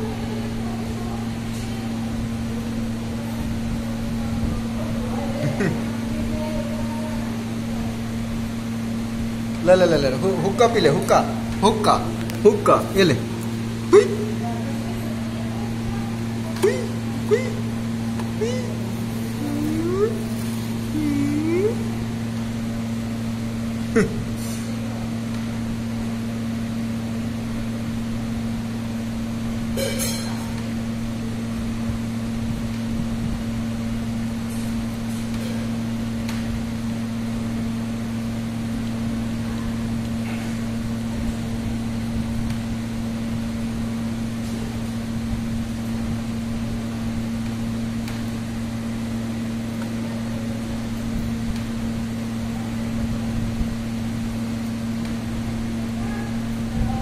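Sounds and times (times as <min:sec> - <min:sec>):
steady machine hum: 0:00.0 - 0:57.0.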